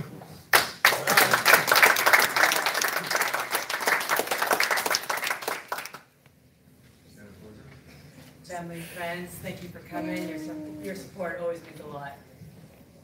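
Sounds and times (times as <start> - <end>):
audience applauding: 0.5 - 6.1.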